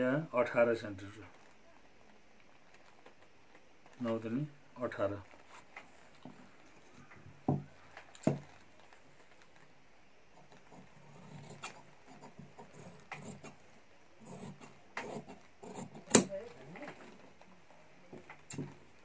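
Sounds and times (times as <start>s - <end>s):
shears snipping cloth: 14.4s - 16.7s.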